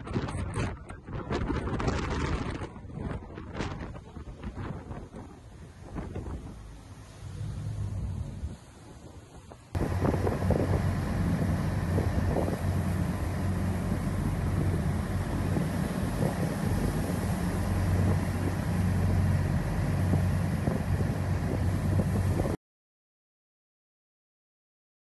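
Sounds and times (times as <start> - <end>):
heavy sea: 0.0 - 22.6
wind on microphone: 0.0 - 22.6
diesel engines droning: 5.5 - 22.6.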